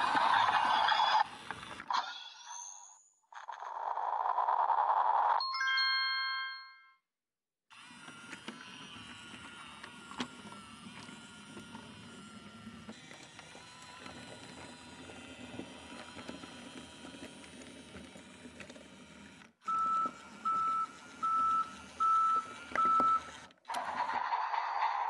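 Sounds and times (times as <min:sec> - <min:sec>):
toy train motor whirr: 0:00.0 - 0:05.4, 0:07.7 - 0:25.0.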